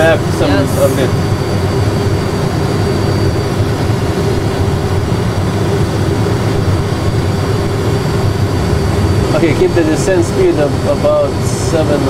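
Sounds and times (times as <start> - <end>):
constant low cockpit hum: 0.0 - 12.0.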